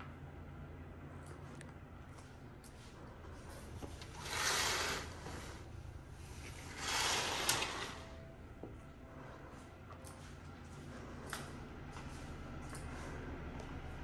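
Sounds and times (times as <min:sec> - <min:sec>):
curtain fabric swishing: 0:04.1 - 0:05.6, 0:06.3 - 0:08.2.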